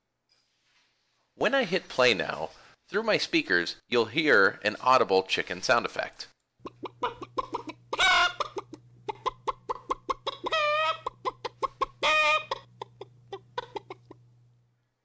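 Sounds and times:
hen clucking sound effect: 6.6 - 14.2.

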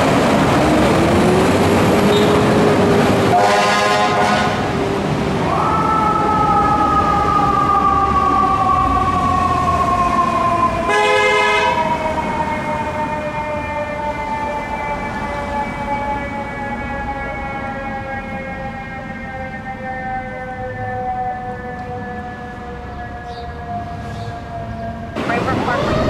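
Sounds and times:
air horn blast: 3.3 - 4.7, 10.9 - 11.8
fire truck siren winding: 5.8 - 26.0.

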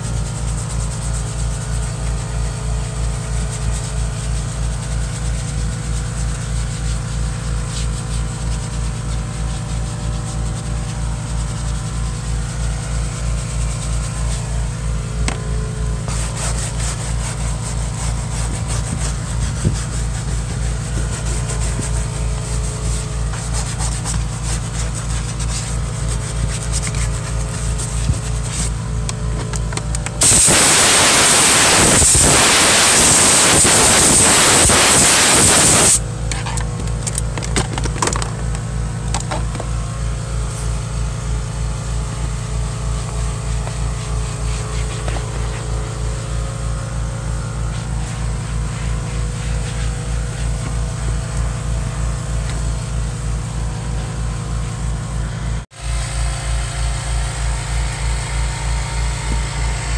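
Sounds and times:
loud hiss of spray: 30.2 - 36.0.

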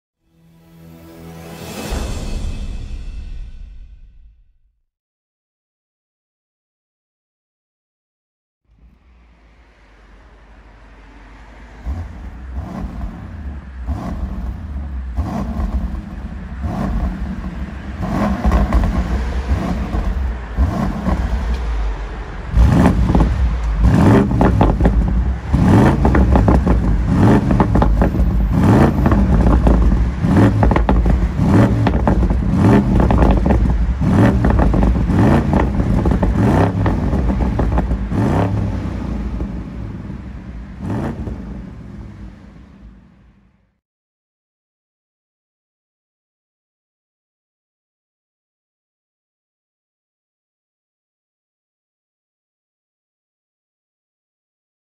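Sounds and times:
car engine revving: 8.7 - 43.7.

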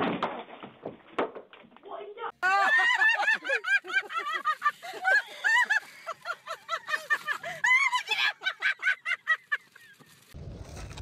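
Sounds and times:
people laughing and squealing: 2.4 - 10.3.

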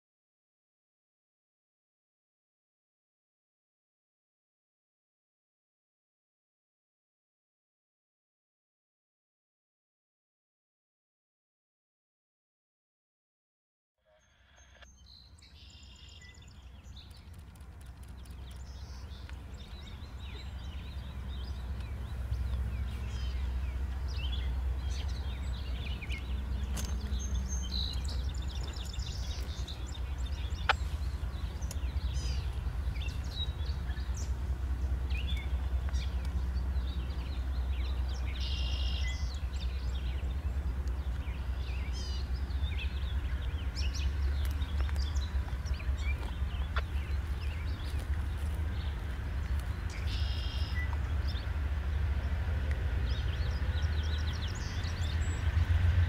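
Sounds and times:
birds chirping: 14.1 - 56.0
distant diesel locomotive rumble: 14.4 - 56.0.

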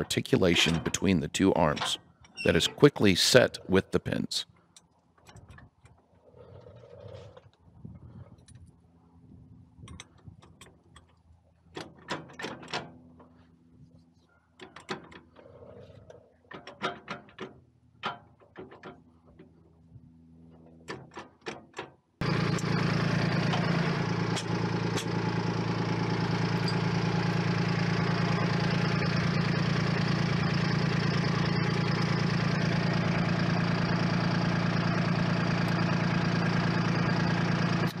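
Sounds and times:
tractor diesel engine running: 0.0 - 4.4, 22.2 - 38.0
metal clicks and knocks: 16.5 - 19.5.

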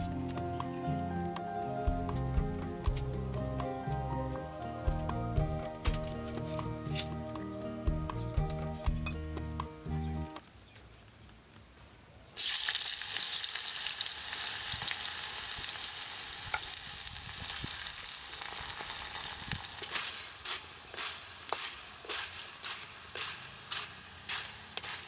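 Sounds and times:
plantain deep-frying in oil: 12.4 - 25.0.

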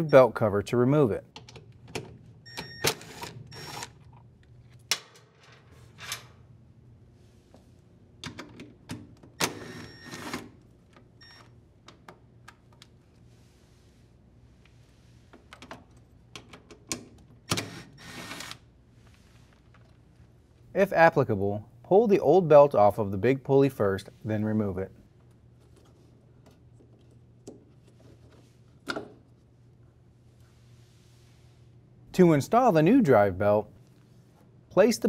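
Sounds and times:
clicks and knocks of handling parts: 1.3 - 2.2, 15.3 - 17.4.

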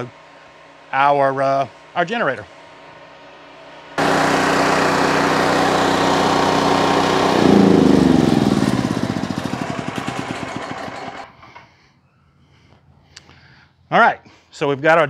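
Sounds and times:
generator engine running and winding down: 3.8 - 11.6.

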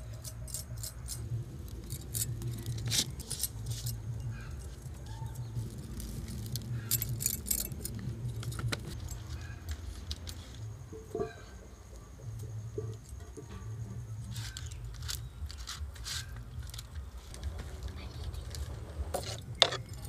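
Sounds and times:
peeler scraping a root: 14.2 - 17.4
clicks and clinks of food preparation: 14.5 - 20.0.

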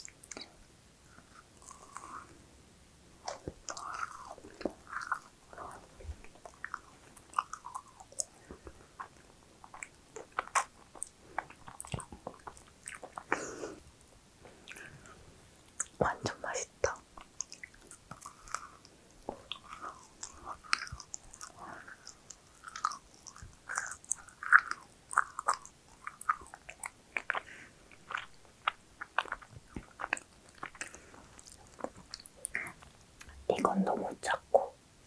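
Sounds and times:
person chewing crunchy food: 1.1 - 2.3, 3.2 - 13.8, 17.2 - 33.4
wet mouth clicks: 9.0 - 13.5, 15.7 - 16.0, 16.9 - 33.8.

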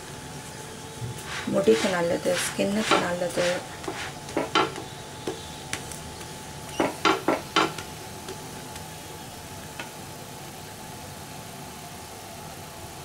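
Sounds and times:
faint sizzle of oiled pan: 0.0 - 13.0
spatula knocking on pan: 1.8 - 8.4.

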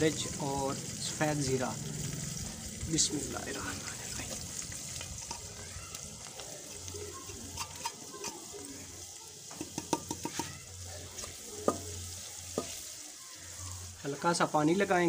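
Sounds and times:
masala sizzling in a pot: 0.0 - 15.0
spices tapped off a plate: 9.5 - 10.6.

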